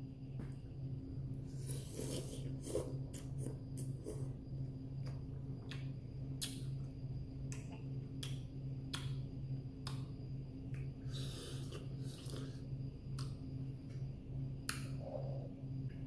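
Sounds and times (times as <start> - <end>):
steady low hum: 0.0 - 16.0
chewing with wet mouth clicks: 7.5 - 9.2.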